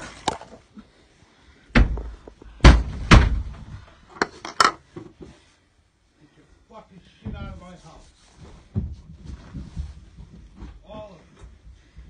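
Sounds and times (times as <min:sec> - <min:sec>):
door banging shut: 0:01.8 - 0:03.7.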